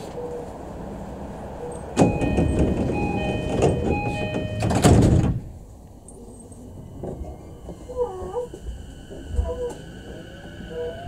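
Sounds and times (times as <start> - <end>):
sliding doors closing with thud: 1.7 - 5.6
two-note door chime: 2.0 - 4.9.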